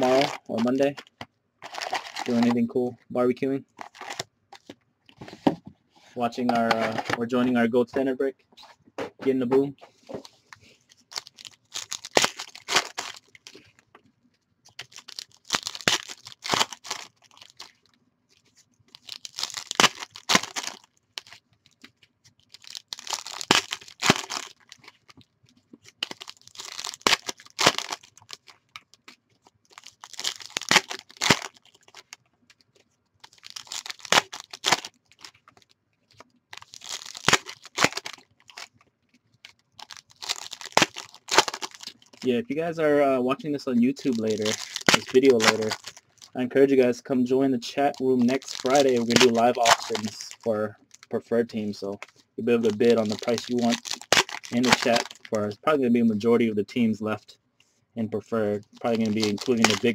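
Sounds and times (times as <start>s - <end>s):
card pack wrappers tearing: 0.0s - 1.0s, 1.6s - 2.6s, 3.8s - 4.2s, 11.0s - 13.6s, 14.7s - 17.9s, 18.9s - 21.8s, 22.5s - 25.2s, 25.9s - 29.1s, 29.7s - 32.2s, 33.2s - 38.8s, 39.4s - 42.4s, 43.6s - 46.4s, 47.6s - 55.4s, 58.7s - 59.9s.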